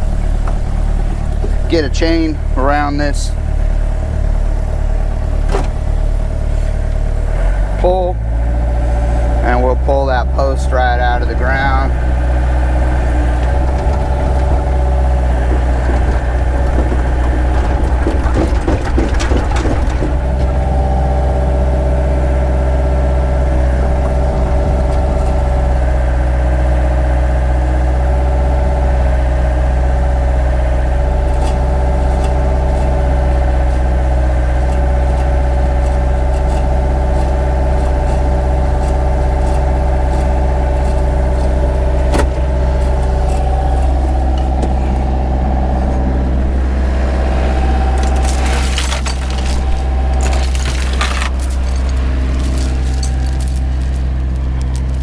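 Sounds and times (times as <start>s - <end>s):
diesel engine running: 0.0s - 55.0s
hydraulic whine: 10.8s - 48.0s.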